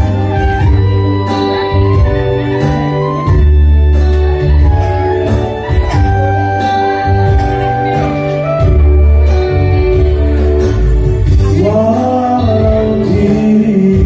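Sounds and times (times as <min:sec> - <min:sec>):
guitar: 0:00.0 - 0:14.0
heavy pulsing bass: 0:00.0 - 0:14.0
keyboard chords: 0:00.0 - 0:14.0
man singing: 0:11.2 - 0:14.0.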